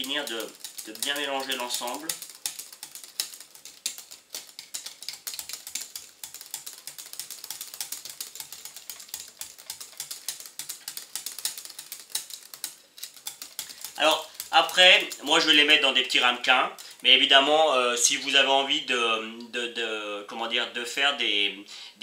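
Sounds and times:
whisk clicking against glass bowl: 0.0s - 17.0s.

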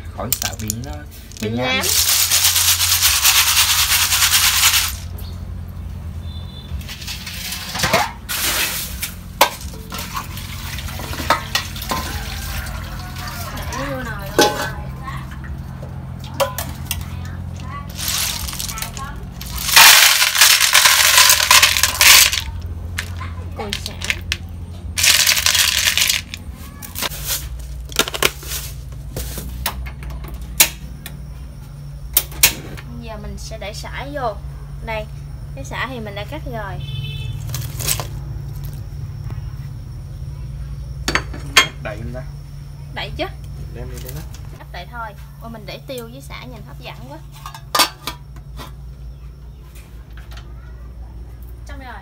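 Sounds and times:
shells clattering on metal bowl: 0.2s - 5.2s, 6.8s - 15.5s, 16.2s - 28.7s
metal pot clicks and knocks: 14.3s - 14.8s.

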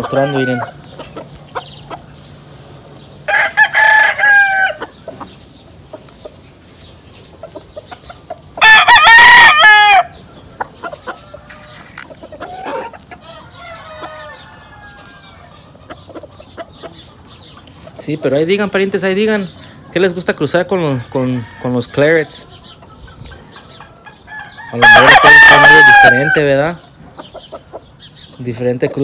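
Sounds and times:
chicken clucking and calls: 0.0s - 29.0s
rooster crowing: 3.3s - 4.9s, 8.6s - 10.2s, 11.5s - 15.4s, 24.2s - 26.5s.

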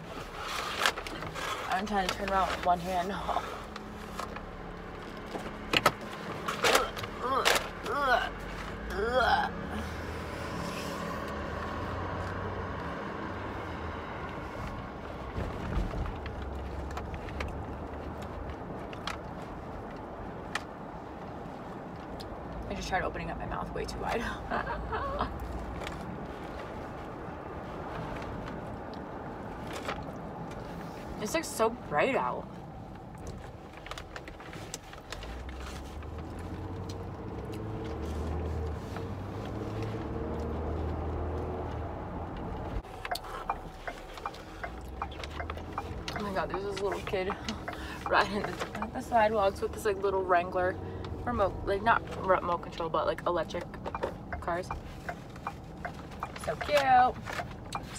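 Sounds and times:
car engine and road rumble: 0.0s - 57.9s
small clicks and rustles: 14.3s - 22.7s, 32.5s - 49.3s.

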